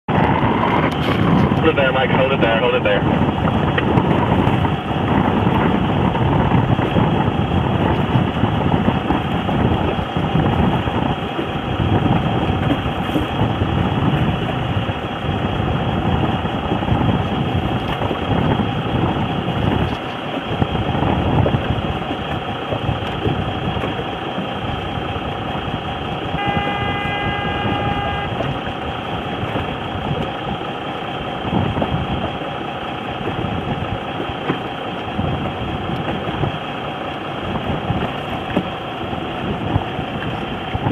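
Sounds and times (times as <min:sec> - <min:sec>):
boat engine running: 0:00.0 - 0:40.9
wind rumbling on microphone: 0:00.1 - 0:40.9
starting horn blast: 0:26.3 - 0:28.8.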